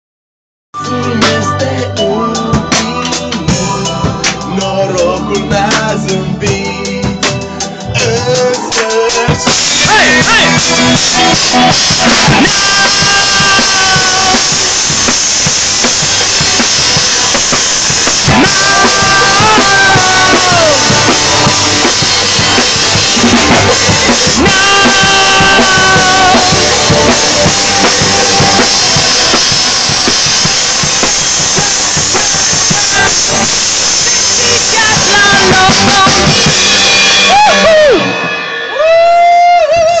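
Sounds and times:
held vocal notes: 0.8 - 10.7, 18.3 - 29.3
drum kit beat: 0.8 - 40.0
electric guitar: 0.8 - 40.0
keyboard: 0.8 - 40.0.

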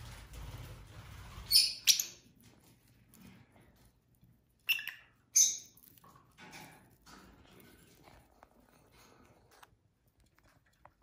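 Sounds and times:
lovebirds chirping: 1.5 - 2.3, 4.6 - 5.9.

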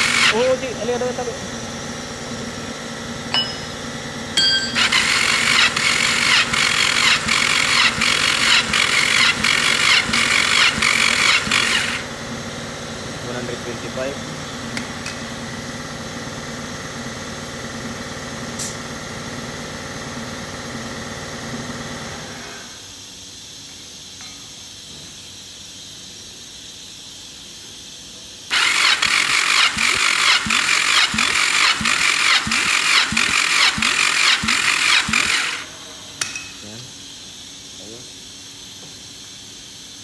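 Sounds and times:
starter motor cranking engine: 0.0 - 3.2, 4.0 - 12.2, 28.5 - 35.7.

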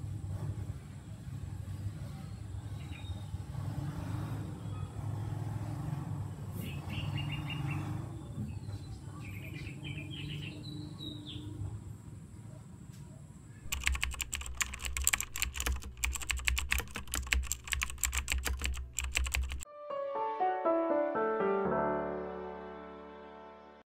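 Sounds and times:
birds chirping: 6.6 - 11.7
rapid dense clicking: 13.7 - 19.6
music with rising notes: 19.7 - 23.8.

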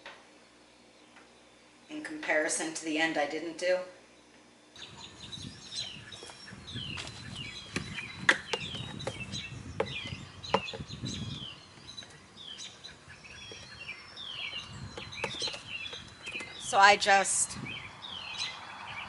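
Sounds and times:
small birds chirping: 4.1 - 19.0.

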